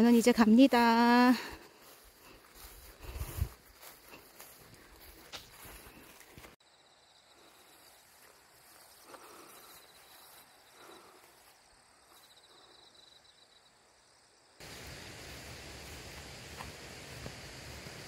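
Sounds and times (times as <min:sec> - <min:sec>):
insects chirping: 0:00.0 - 0:18.0.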